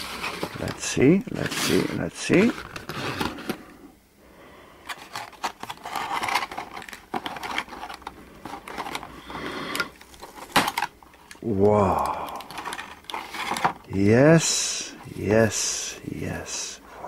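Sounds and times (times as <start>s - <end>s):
foam case scraping and rustling: 0.0s - 3.7s, 4.9s - 10.9s, 12.5s - 13.9s.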